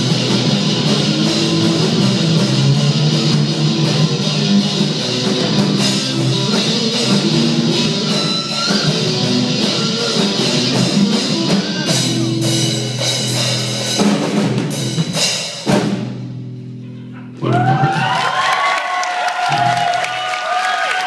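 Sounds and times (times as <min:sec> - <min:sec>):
drum and cymbal hits: 0:00.0 - 0:16.4
live rock band playing: 0:00.0 - 0:18.2
audience cheering and whooping: 0:17.4 - 0:21.0.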